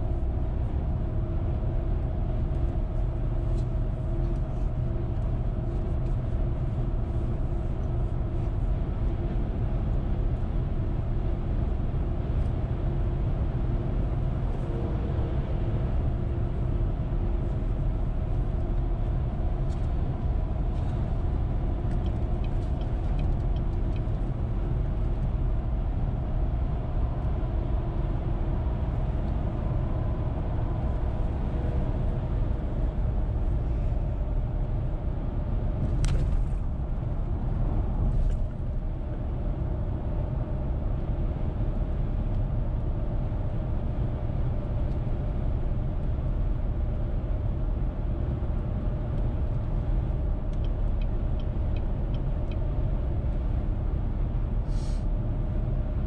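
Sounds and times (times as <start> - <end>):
car road and engine rumble: 0.0 - 56.0.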